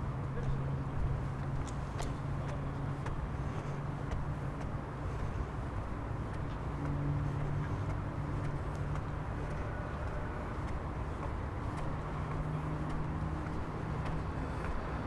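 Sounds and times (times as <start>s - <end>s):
street traffic noise: 0.0s - 15.0s
vehicle engine humming: 0.0s - 15.0s.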